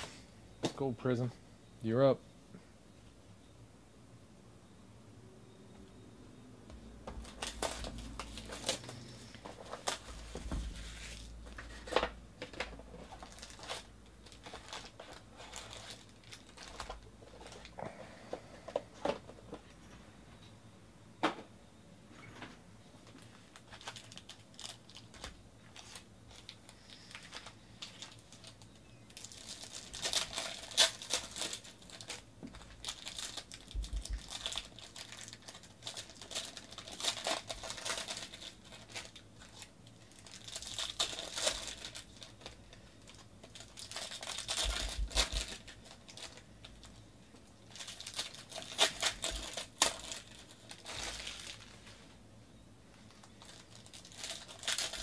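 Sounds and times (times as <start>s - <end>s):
foil wrappers tearing and crinkling: 7.2s - 17.7s, 23.2s - 52.1s, 53.1s - 55.0s.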